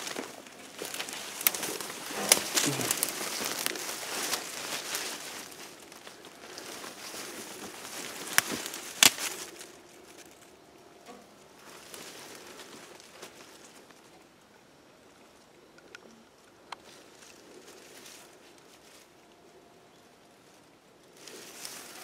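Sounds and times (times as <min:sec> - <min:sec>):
footsteps through crunching leaves: 0:00.0 - 0:10.5, 0:11.6 - 0:14.0, 0:21.2 - 0:22.0
twig snaps: 0:00.1 - 0:06.8, 0:07.9 - 0:09.7.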